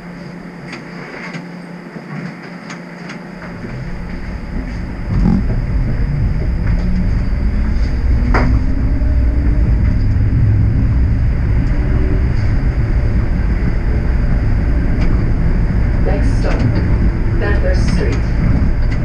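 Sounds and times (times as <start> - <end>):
streetcar wheels rumbling on rails: 0.0 - 19.0
faint rising whine: 2.9 - 19.0.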